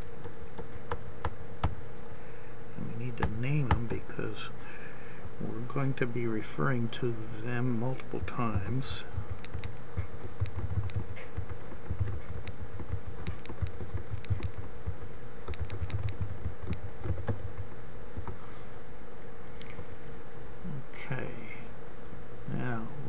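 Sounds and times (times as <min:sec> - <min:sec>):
steady low hum: 0:00.0 - 0:23.0
typing on computer keyboard: 0:08.6 - 0:17.6.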